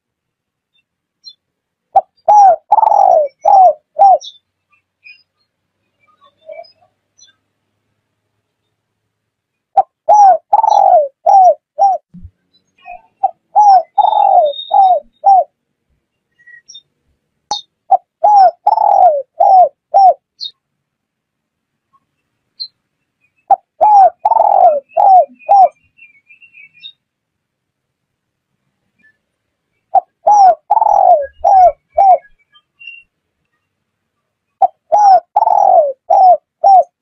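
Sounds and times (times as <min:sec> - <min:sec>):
dove cooing: 0:01.9 - 0:04.3, 0:09.8 - 0:12.1, 0:13.2 - 0:15.5, 0:17.9 - 0:20.2, 0:23.5 - 0:25.8, 0:29.9 - 0:32.4, 0:34.6 - 0:37.0.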